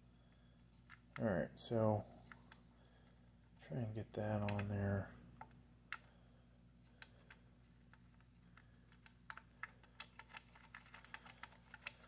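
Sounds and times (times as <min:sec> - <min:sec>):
small clicks and taps of hardware: 0:04.4 - 0:04.8.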